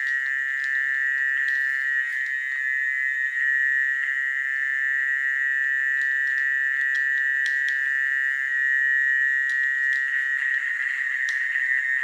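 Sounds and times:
chorus of frogs calling: 9.9s - 12.0s.

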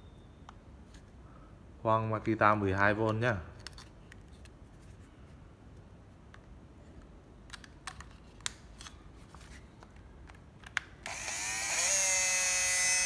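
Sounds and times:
cordless drill motor spinning: 11.0s - 13.0s.

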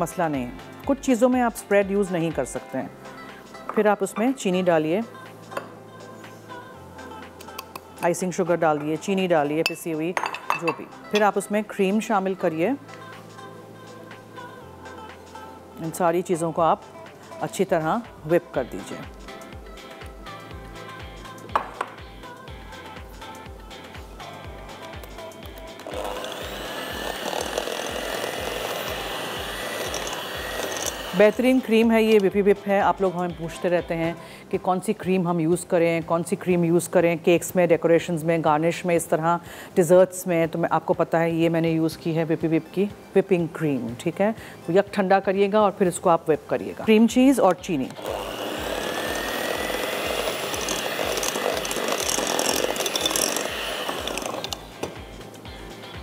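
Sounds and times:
background music with steady beat: 0.0s - 56.0s
electric hand mixer whirring: 25.8s - 32.2s, 48.0s - 54.9s.

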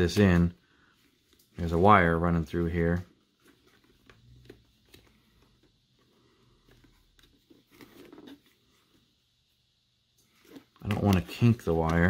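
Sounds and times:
faint rustling of hands: 0.0s - 9.3s.

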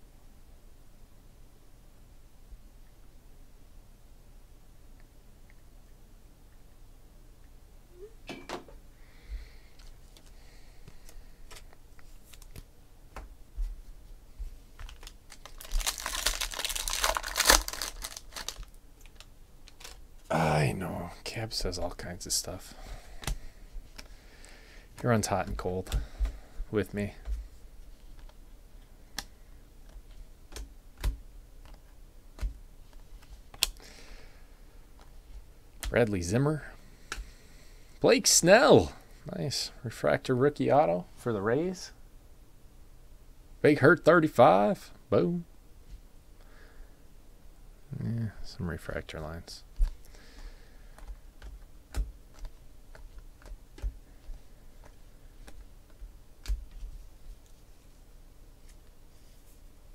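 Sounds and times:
cards flipped through by hand: 9.8s - 13.2s, 14.8s - 20.0s, 51.0s - 57.6s.

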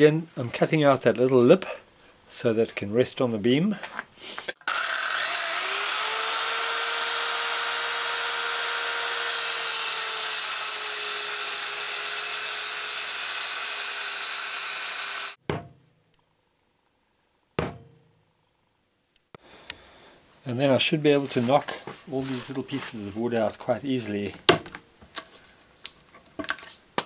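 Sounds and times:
circular saw cutting wood: 4.5s - 15.4s.

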